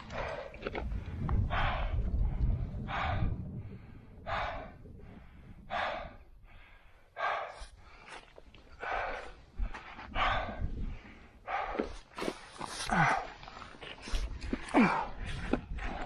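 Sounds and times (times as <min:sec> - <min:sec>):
low rumble: 0:00.0 - 0:07.0
person breathing hard: 0:00.0 - 0:16.0.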